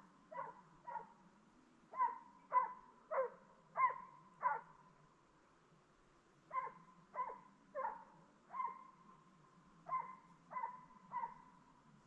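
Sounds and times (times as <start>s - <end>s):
dog barking: 0.3s - 1.1s, 1.9s - 4.7s, 6.5s - 8.9s, 9.9s - 11.5s.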